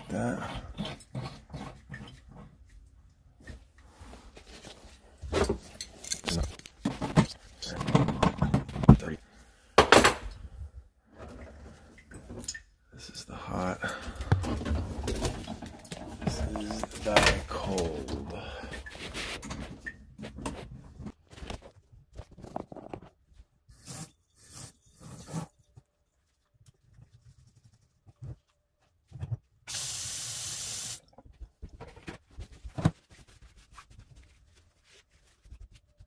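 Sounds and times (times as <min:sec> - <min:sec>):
handling clicks and knocks: 0:14.2 - 0:18.3.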